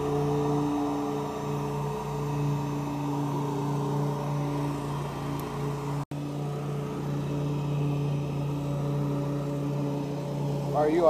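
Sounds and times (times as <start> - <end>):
heat gun motor hum and fan: 0.0 - 11.0.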